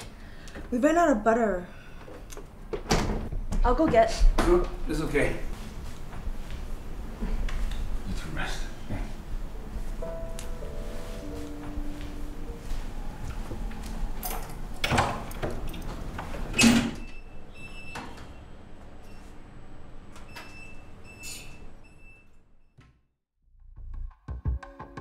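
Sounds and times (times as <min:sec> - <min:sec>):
wooden door opening and shutting: 0:02.7 - 0:04.6, 0:14.2 - 0:18.3
loud door thud: 0:02.8 - 0:04.6
lift metal doors sliding: 0:13.3 - 0:19.4.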